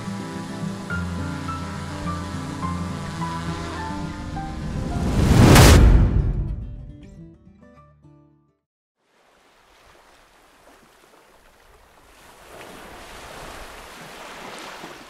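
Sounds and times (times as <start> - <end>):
wind: 0.0 - 6.3, 9.0 - 15.0
background music: 0.0 - 8.4
rushing water: 9.0 - 15.0.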